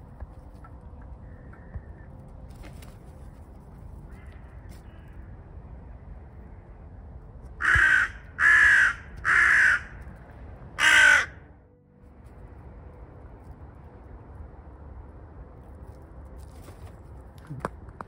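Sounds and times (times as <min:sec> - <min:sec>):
crow cawing: 0:04.1 - 0:05.2, 0:07.6 - 0:10.0, 0:10.8 - 0:11.5.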